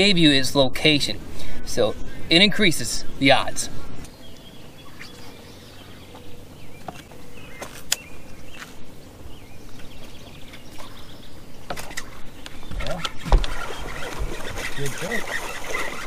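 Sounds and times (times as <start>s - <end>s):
faint bird chirps: 4.0s - 8.7s.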